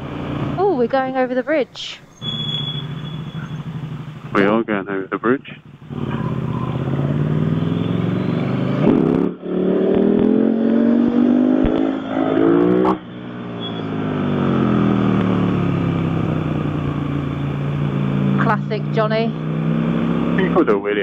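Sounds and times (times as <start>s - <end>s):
motorcycle engine accelerating: 0.0s - 21.0s.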